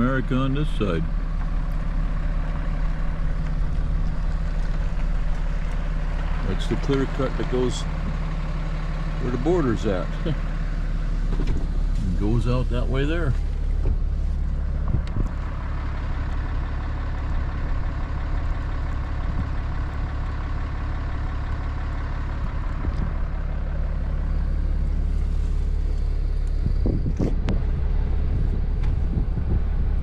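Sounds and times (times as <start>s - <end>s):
engine and road rumble: 0.0s - 30.0s
low thumps: 26.6s - 30.0s.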